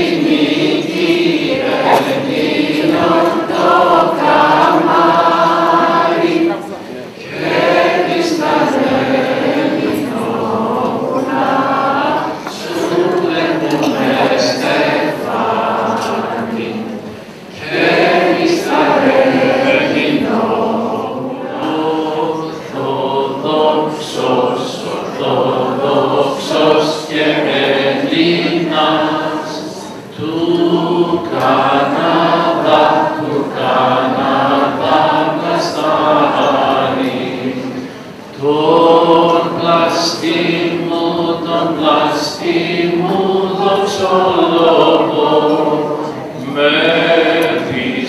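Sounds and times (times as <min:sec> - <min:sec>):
choir chanting: 0:00.0 - 0:48.0.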